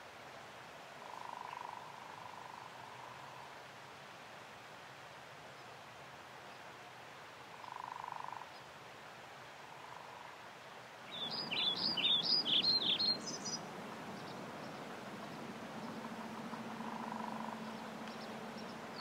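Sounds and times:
small bird chirping: 11.1s - 13.6s.

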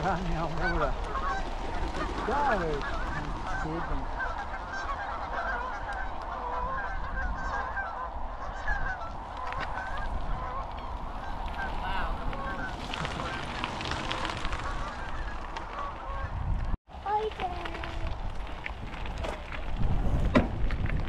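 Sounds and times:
geese honking: 0.0s - 16.4s.

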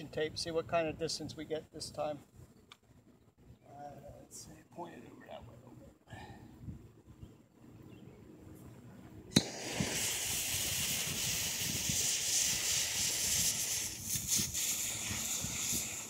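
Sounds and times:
fuse catching with a pop: 9.3s - 9.7s
fuse hissing: 9.3s - 16.0s.

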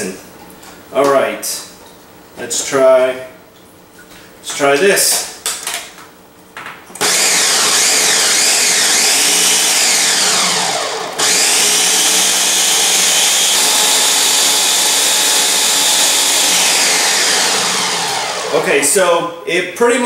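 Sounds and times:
blender chopping ice: 7.0s - 18.8s.

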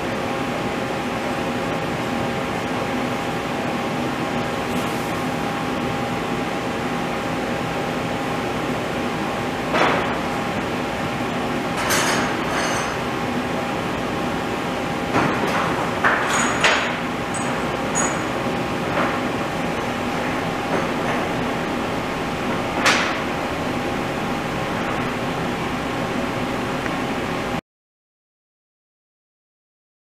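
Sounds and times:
lathe humming: 17.1s - 27.6s.

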